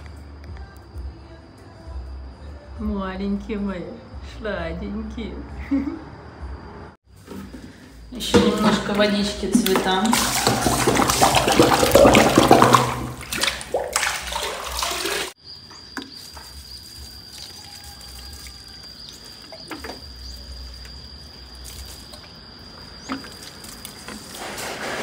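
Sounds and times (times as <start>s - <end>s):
water sloshing in plastic tub: 7.2s - 25.0s.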